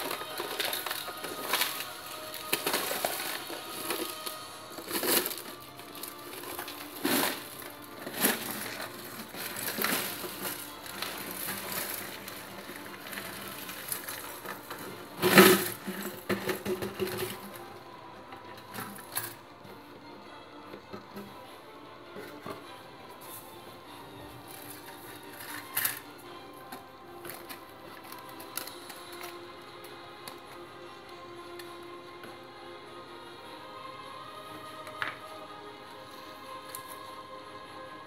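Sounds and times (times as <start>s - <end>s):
electronic parts rattling in plastic jar: 0.0s - 17.5s.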